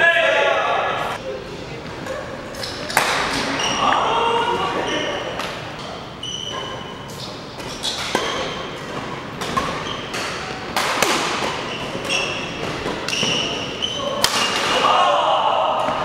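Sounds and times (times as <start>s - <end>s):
shoes squeaking on wooden floor: 3.4s - 10.7s, 11.6s - 14.2s
rackets striking shuttlecock: 7.6s - 13.5s.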